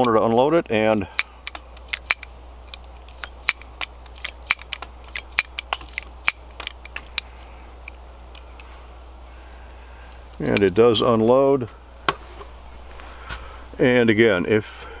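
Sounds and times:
revolver cylinder clicking: 1.1 - 8.7.

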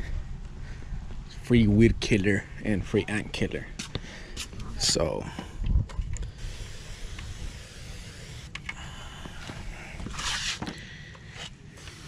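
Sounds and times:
steady low rumble: 0.0 - 12.0
sprayer hissing: 6.3 - 10.7, 11.7 - 12.0.

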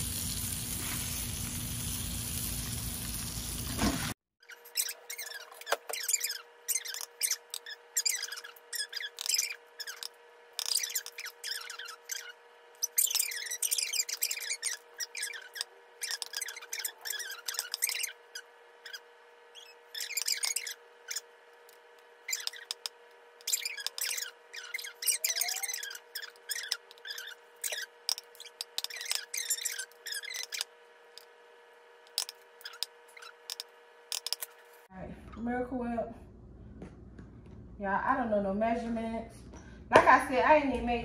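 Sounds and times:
egg shells cracking and squeaking: 4.4 - 31.3, 32.1 - 34.6.

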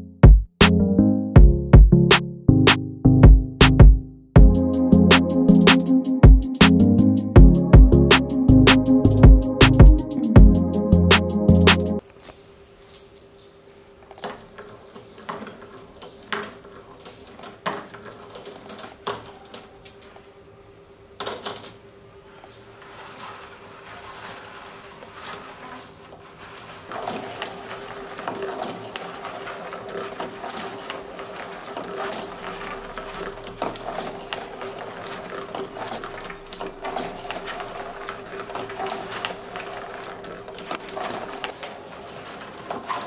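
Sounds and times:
marbles rattling down track: 23.0 - 43.0
glass marbles clicking: 27.0 - 43.0.

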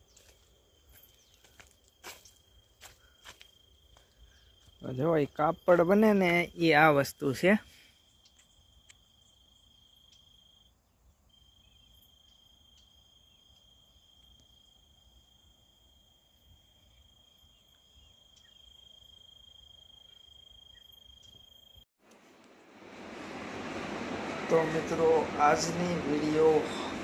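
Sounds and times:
cricket trilling: 8.0 - 21.8.

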